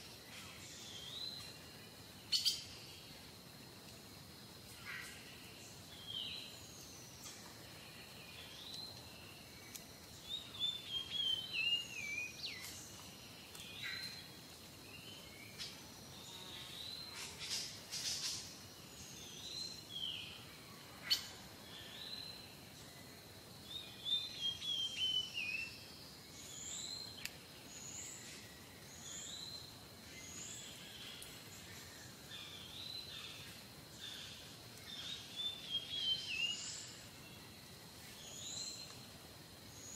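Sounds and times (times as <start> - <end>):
songbirds chirping: 0.0 - 39.9
steady background hiss: 0.0 - 39.9.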